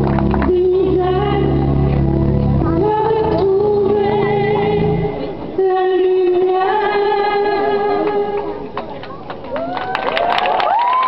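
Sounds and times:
musical accompaniment: 0.0s - 8.6s
woman singing long notes: 0.4s - 8.4s.

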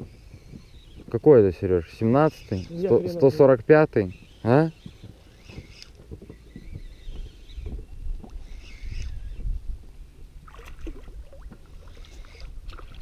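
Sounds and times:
water lapping against boat: 10.4s - 13.0s.

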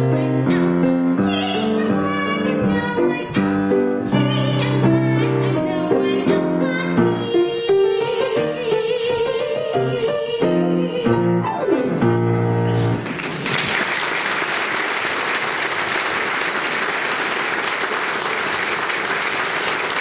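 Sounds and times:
audience applauding: 13.0s - 20.0s.

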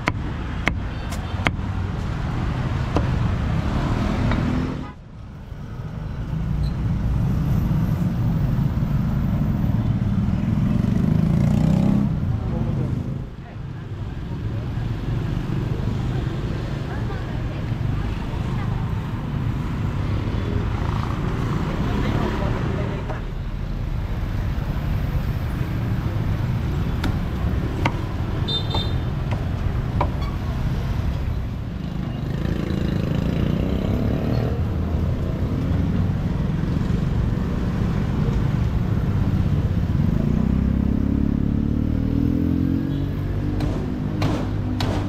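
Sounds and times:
vehicle engines running: 0.0s - 45.0s
sharp knocks: 43.5s - 45.0s.

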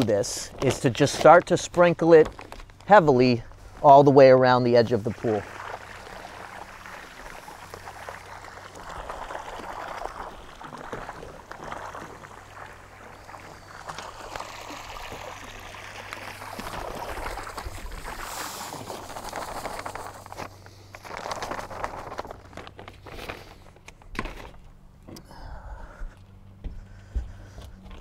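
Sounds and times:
salt pattering into water: 4.7s - 22.5s.

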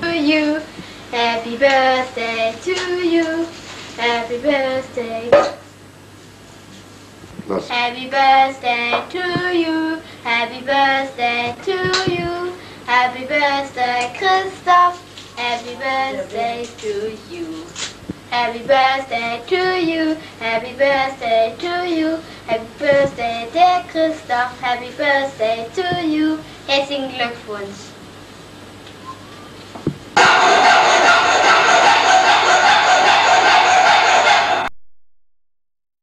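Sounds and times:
girl singing unaccompanied: 0.0s - 5.4s, 7.7s - 28.0s.

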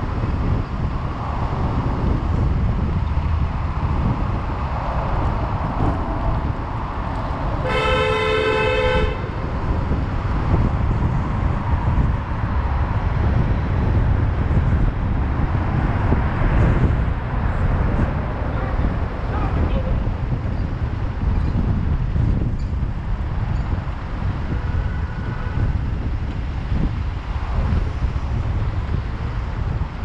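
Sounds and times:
street traffic rumble: 0.0s - 30.0s
vehicle horn honk: 7.6s - 9.4s, 24.5s - 25.7s.

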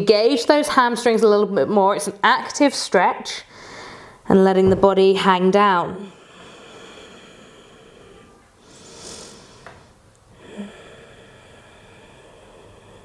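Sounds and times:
woman breathing quietly: 3.5s - 4.3s, 6.0s - 13.0s.

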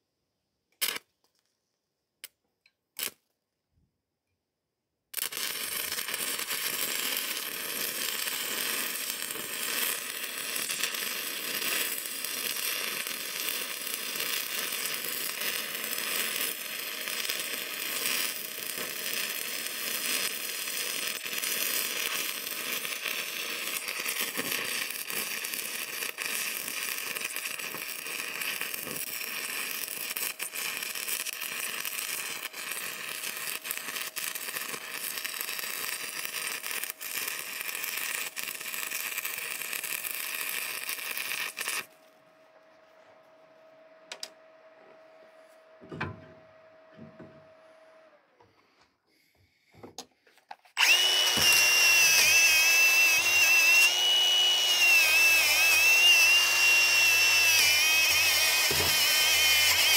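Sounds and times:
welding arc buzzing: 5.1s - 43.2s, 50.7s - 59.9s.

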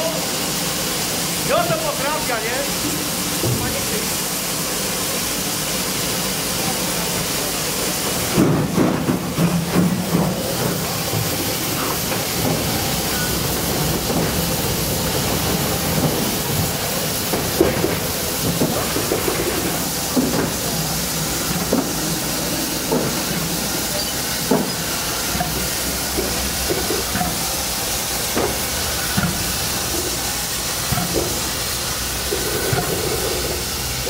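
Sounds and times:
steam hissing: 0.0s - 34.0s
metal clanking and knocks: 8.2s - 30.2s, 30.8s - 31.6s, 32.2s - 33.8s.

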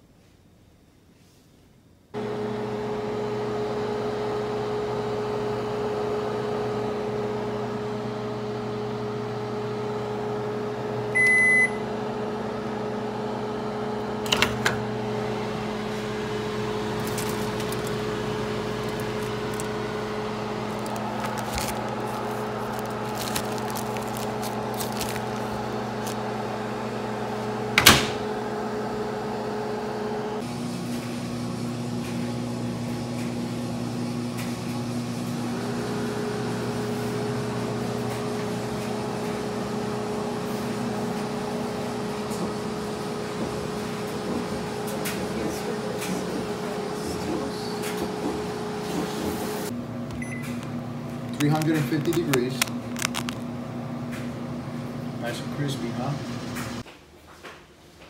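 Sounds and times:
oven humming: 2.1s - 56.9s
short beep: 11.2s - 11.8s, 50.2s - 50.5s.

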